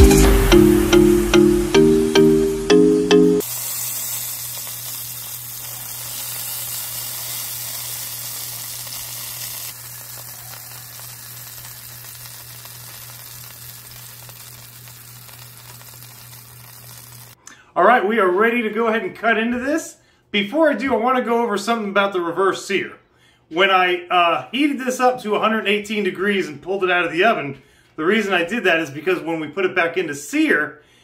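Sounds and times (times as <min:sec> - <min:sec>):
roast beef sizzling: 0:03.4 - 0:17.4.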